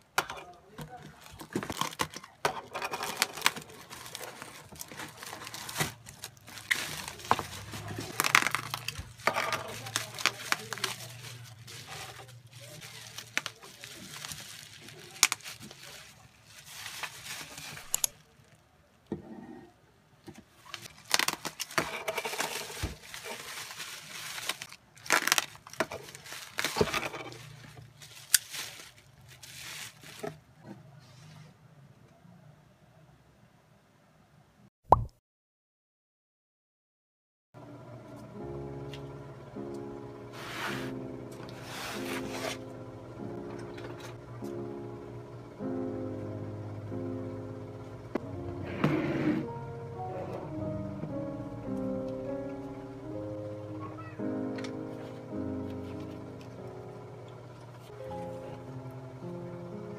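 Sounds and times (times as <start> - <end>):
bubble wrap crinkling: 0.7 - 18.6, 20.5 - 30.5, 40.3 - 42.8, 53.1 - 58.8.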